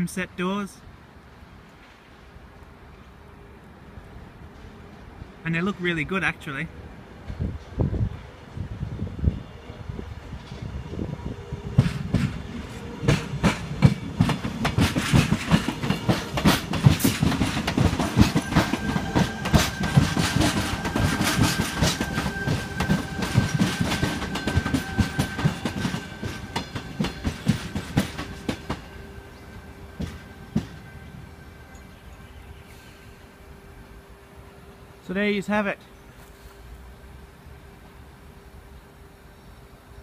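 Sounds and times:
electric train whine: 0:06.7 - 0:40.0
train wheels clicking over rail joints: 0:11.7 - 0:31.0.

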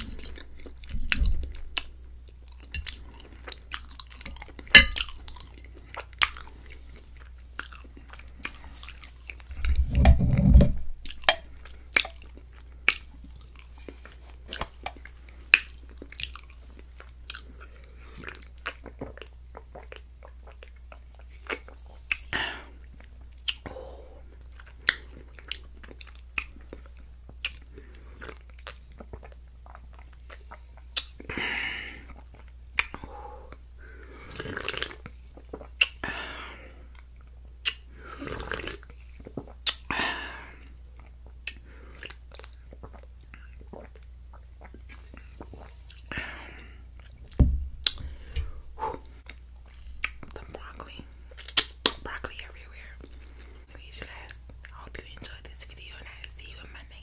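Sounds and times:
swallowing gulps: 0:00.0 - 0:03.2, 0:41.0 - 0:50.6
wet mouth clicks: 0:32.8 - 0:33.1, 0:34.4 - 0:36.0, 0:37.6 - 0:39.9, 0:47.8 - 0:52.9
breathy sounds: 0:47.9 - 0:50.2.

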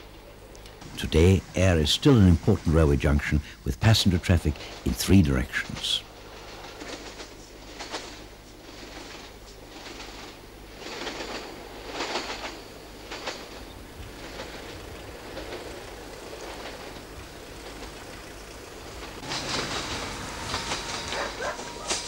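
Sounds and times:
train wheels rumbling: 0:00.0 - 0:22.0
wheels knocking over rail joints: 0:06.3 - 0:22.0.

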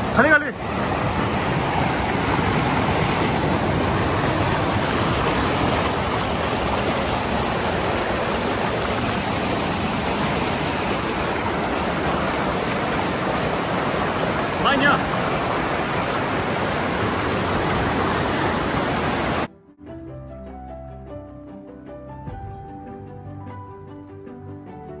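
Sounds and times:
river rushing over rapids: 0:00.0 - 0:19.5.

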